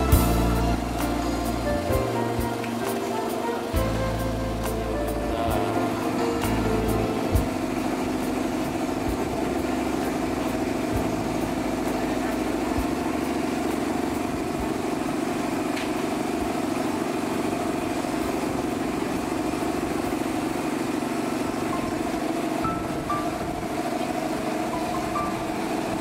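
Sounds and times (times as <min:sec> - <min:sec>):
motor droning: 0:00.0 - 0:26.0.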